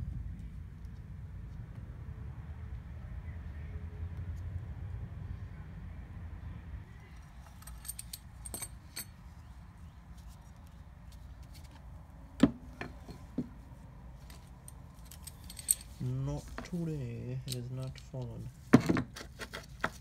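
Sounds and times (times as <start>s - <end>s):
metal clinking: 7.4s - 9.2s, 14.2s - 16.7s.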